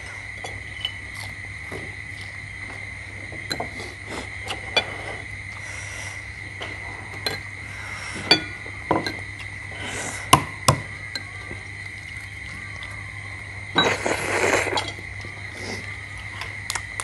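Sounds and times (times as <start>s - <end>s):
tableware clinking: 7.1s - 7.5s, 8.2s - 9.3s.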